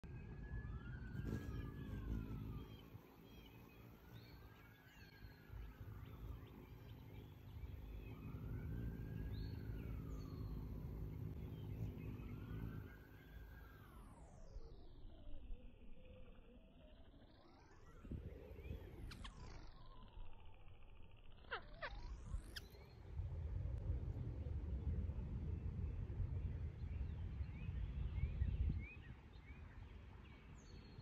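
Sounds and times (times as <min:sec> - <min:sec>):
low wind rumble: 0:00.0 - 0:14.0, 0:18.0 - 0:20.8, 0:22.0 - 0:31.0
distant siren wailing: 0:00.0 - 0:23.3
faint bird chirps: 0:00.0 - 0:23.3, 0:25.7 - 0:31.0.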